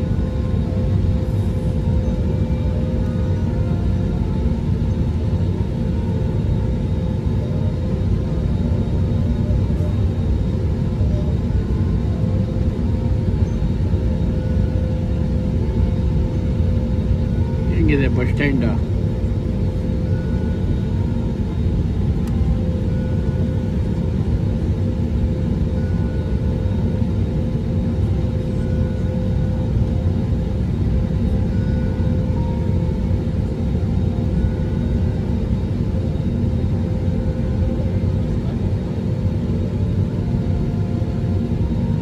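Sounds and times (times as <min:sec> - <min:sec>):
jet engine cabin rumble: 0:00.0 - 0:42.0
steady hums: 0:00.0 - 0:42.0.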